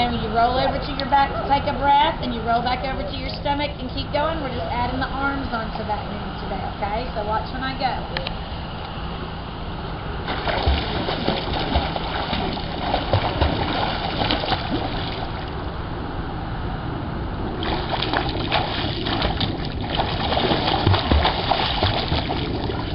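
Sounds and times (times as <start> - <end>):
swimmer splashing in pool: 10.2 - 15.5, 17.6 - 22.9.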